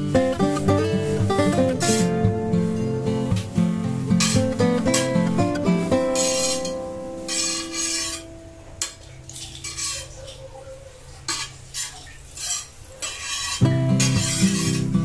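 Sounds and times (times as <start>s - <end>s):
music: 0.0s - 9.0s, 13.6s - 15.0s
metal spatula scraping griddle pan: 0.4s - 10.4s, 11.0s - 15.0s.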